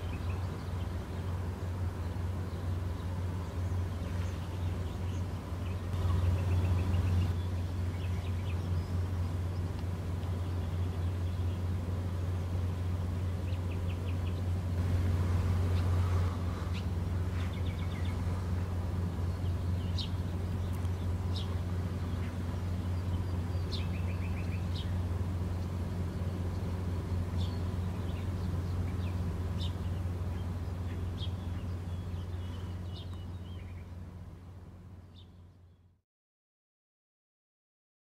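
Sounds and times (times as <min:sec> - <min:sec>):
boat diesel engine drone: 0:00.0 - 0:36.0
small birds chirping: 0:00.0 - 0:36.0.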